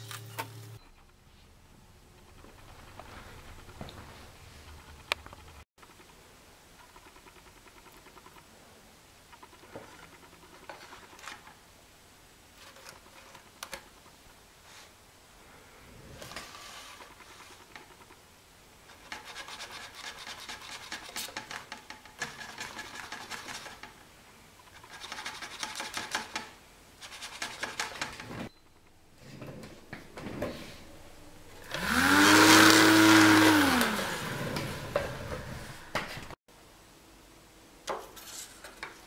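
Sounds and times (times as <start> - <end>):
small fan motor running: 30.9 - 35.9.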